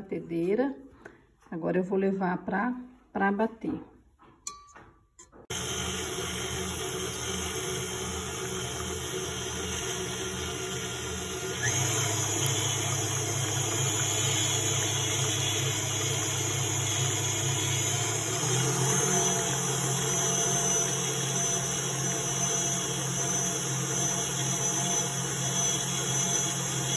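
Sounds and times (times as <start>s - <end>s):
stand mixer whisking liquid: 5.5s - 26.9s.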